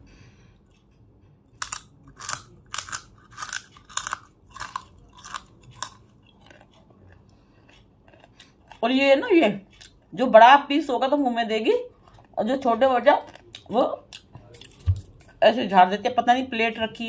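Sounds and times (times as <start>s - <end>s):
crunchy chewing of hard clay: 1.4s - 8.9s, 11.9s - 15.4s.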